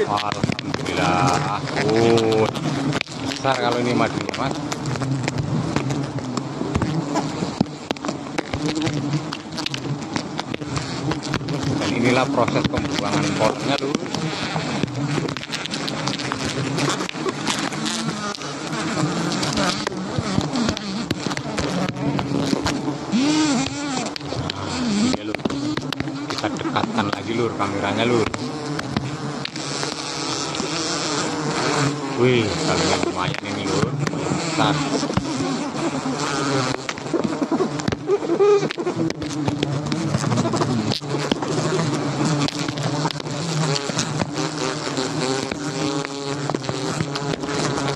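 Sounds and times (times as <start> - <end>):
bees buzzing: 0.0 - 47.9.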